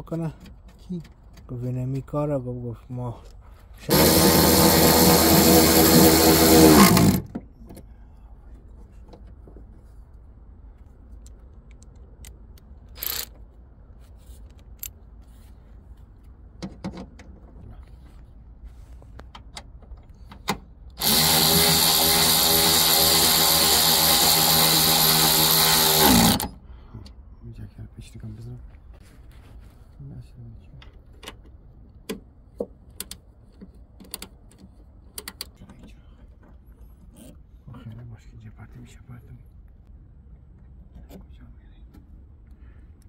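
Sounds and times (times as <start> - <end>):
handheld power tool running: 3.9 - 7.3, 21.0 - 26.5.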